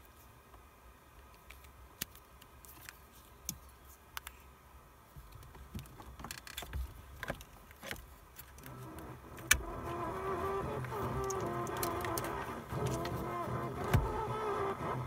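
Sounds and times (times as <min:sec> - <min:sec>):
clicks and rattles of handling metal: 0:05.2 - 0:08.8.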